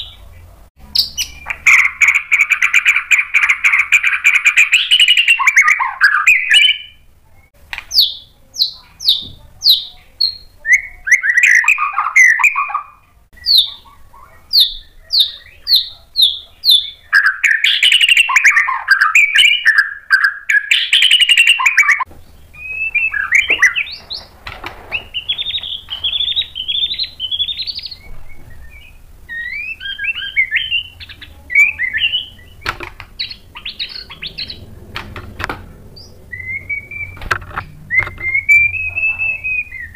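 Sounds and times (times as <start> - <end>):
bird singing varied phrases: 0.0 - 24.3, 24.9 - 34.9, 35.8 - 39.9.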